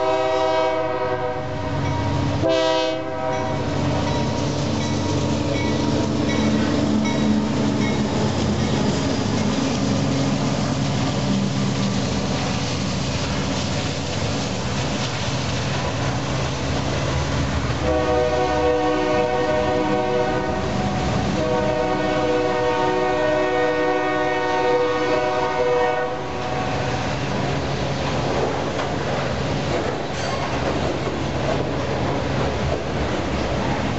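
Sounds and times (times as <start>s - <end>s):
train air horn blasts: 0.0s - 3.8s, 17.8s - 27.0s
diesel locomotive engine running: 0.0s - 33.9s
train cars clacking on rails: 1.7s - 24.6s, 26.7s - 33.9s.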